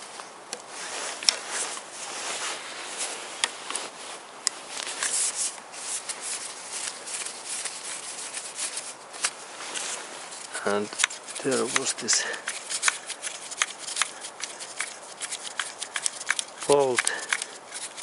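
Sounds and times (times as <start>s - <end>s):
socket wrench rubbing: 5.0s - 18.0s.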